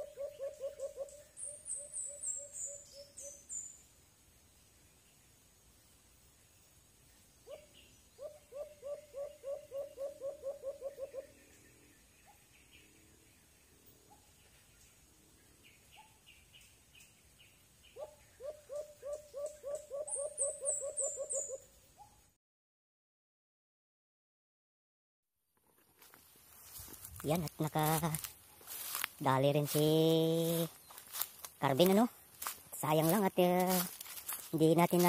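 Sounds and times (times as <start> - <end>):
dove hooting: 0.0 - 3.5, 7.4 - 12.5, 17.9 - 21.8
high-pitched bird chirps: 0.0 - 3.8, 17.9 - 21.7.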